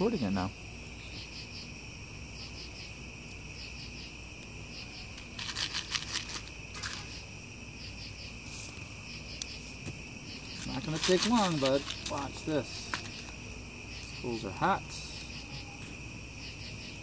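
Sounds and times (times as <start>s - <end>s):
crickets chirping: 0.0s - 17.0s
crackling noise: 3.1s - 7.4s, 8.1s - 16.0s.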